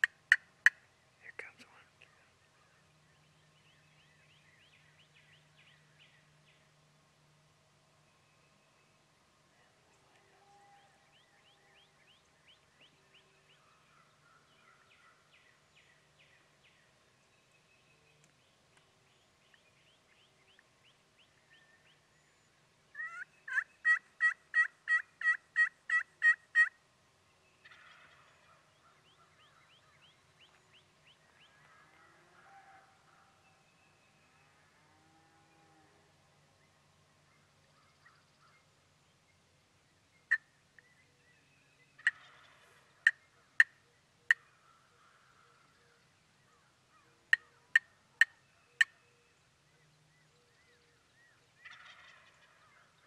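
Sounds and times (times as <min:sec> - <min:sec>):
turkey clucks: 0:23.0 - 0:26.7, 0:42.0 - 0:43.7, 0:51.6 - 0:52.8
turkey yelps: 0:23.0 - 0:26.7.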